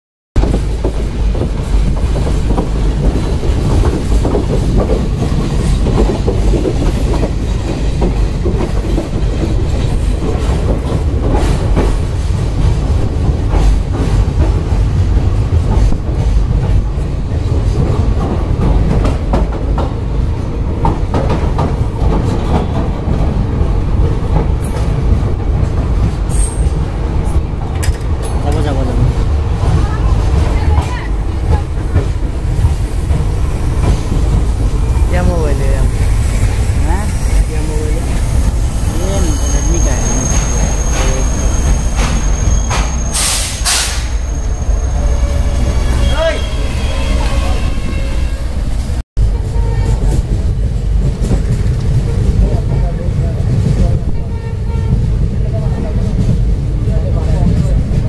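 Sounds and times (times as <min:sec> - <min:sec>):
train clicks and rattles: 0:00.4 - 0:44.2, 0:48.6 - 0:58.0
train wheels rumbling on track: 0:00.4 - 0:58.0.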